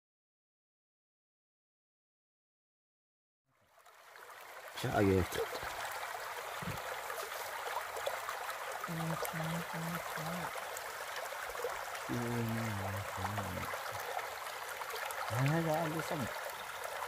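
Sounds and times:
stream flowing over rocks: 3.5 - 17.0
person's voice: 4.8 - 5.4, 8.9 - 10.5, 12.1 - 13.7, 15.3 - 16.3.

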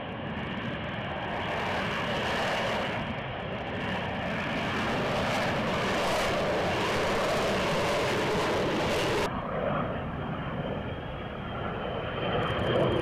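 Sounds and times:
jet engine and lift fan roar: 0.0 - 13.0.

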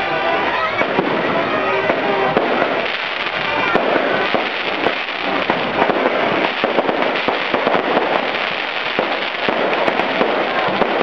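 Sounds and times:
fireworks crackling and popping: 0.0 - 11.0.

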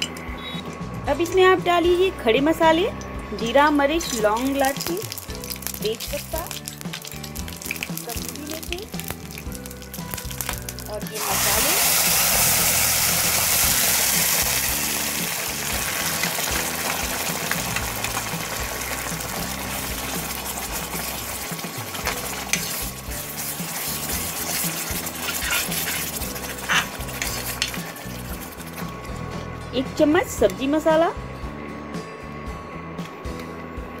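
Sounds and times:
paste sizzling in hot oil: 4.0 - 29.2.

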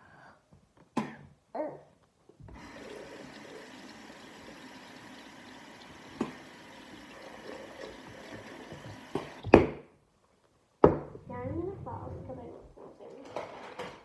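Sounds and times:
tap water running into sink: 2.4 - 9.6.

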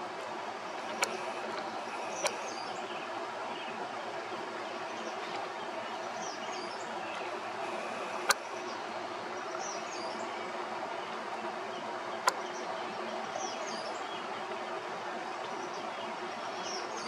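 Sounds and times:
sharp clicks: 0.8 - 2.6, 7.6 - 8.4.

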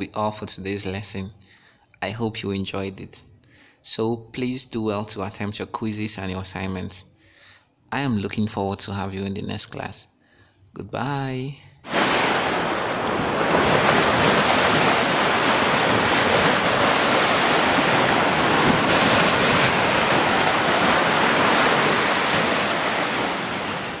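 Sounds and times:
waves washing onto sandy beach: 11.9 - 24.0.

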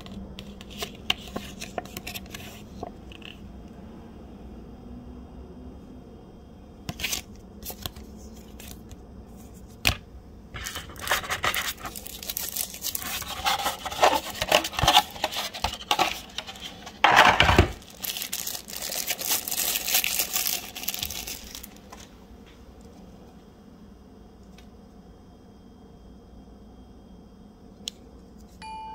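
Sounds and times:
packaging crinkling and tearing: 6.9 - 8.9, 10.6 - 22.1
packaging clicks: 10.6 - 22.0.

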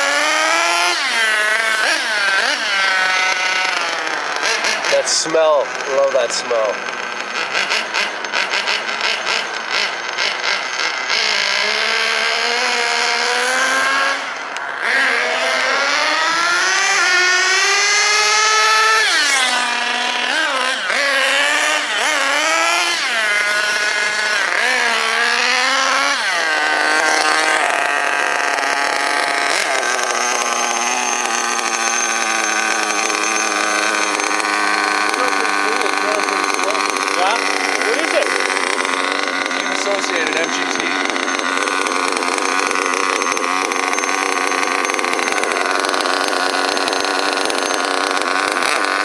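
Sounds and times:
small engine revving: 0.0 - 49.0.

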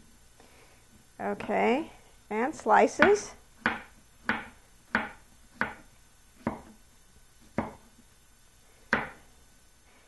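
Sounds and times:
knife chopping on wooden board: 3.0 - 6.8, 7.4 - 8.0, 8.9 - 9.2.

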